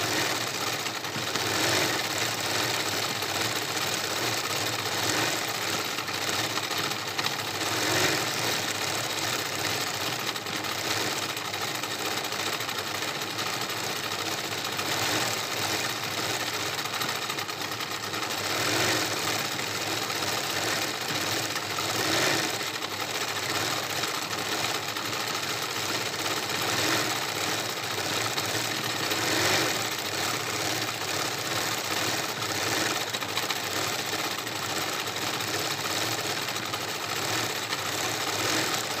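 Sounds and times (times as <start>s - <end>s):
sewing machine running: 0.0s - 39.0s.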